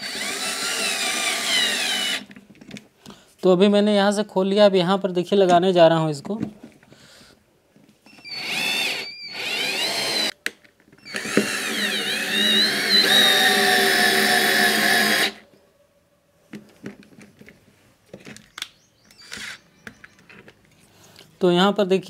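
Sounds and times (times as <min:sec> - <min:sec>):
drill-driver motor driving screw: 0:00.0 - 0:02.3, 0:08.2 - 0:10.4, 0:11.0 - 0:15.4.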